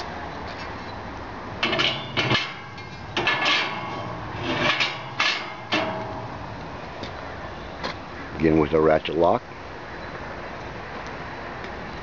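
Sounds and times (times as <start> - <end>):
metal tray scraping and clanking: 1.6 - 6.6.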